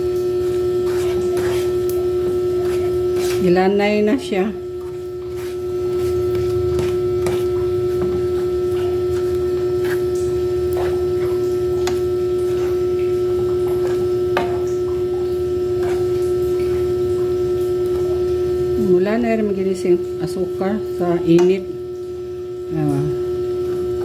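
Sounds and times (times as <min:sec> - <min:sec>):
spatula stirring sugar in metal pan: 0:00.0 - 0:14.6, 0:15.4 - 0:18.0
steady hum: 0:00.0 - 0:24.0.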